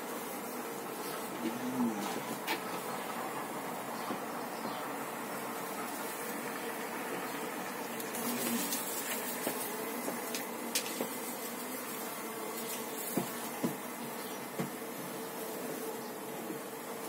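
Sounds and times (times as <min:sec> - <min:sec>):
bees humming: 0:00.0 - 0:17.0
wooden hive frames knocking: 0:09.2 - 0:11.3, 0:13.0 - 0:14.8.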